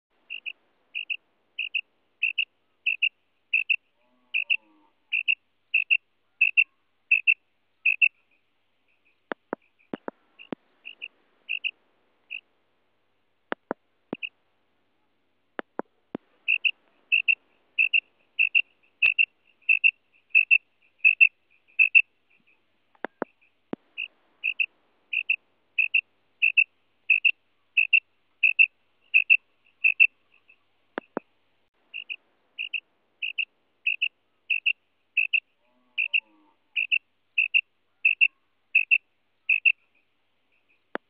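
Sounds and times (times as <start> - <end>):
quail calling: 0.3 - 8.2, 8.9 - 12.5, 15.6 - 31.2, 31.9 - 40.0
sharp clicks: 9.3 - 11.7, 13.5 - 14.3, 15.6 - 22.0, 22.9 - 24.6, 31.0 - 31.3.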